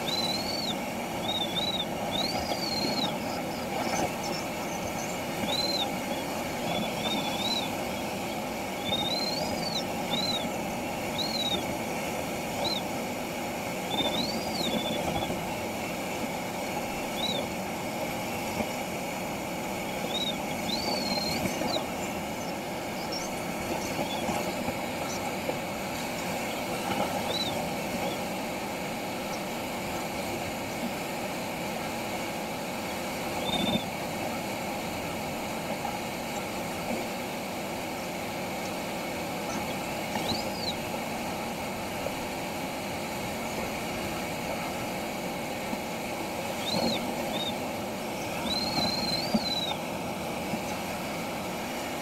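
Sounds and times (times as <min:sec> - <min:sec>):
variometer chirping tones: 0:00.0 - 0:11.7, 0:12.5 - 0:13.0, 0:13.8 - 0:15.5, 0:16.9 - 0:17.5, 0:19.8 - 0:25.2, 0:33.4 - 0:33.8, 0:48.3 - 0:49.8
rush of air over glider canopy: 0:00.0 - 0:52.0.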